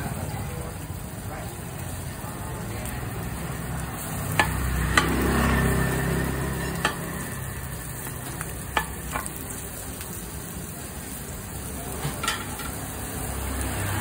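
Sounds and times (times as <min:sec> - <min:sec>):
batter sizzling in hot pan: 0:00.0 - 0:14.0
metal ladle clinking on pan: 0:08.3 - 0:09.4, 0:12.0 - 0:12.8.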